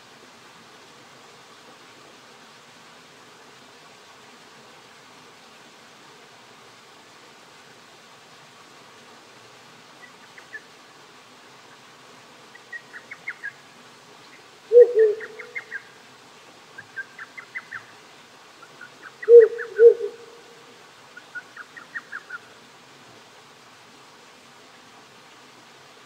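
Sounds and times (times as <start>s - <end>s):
creek hissing: 0.0s - 26.0s
owl hooting: 14.7s - 15.8s, 18.8s - 20.6s.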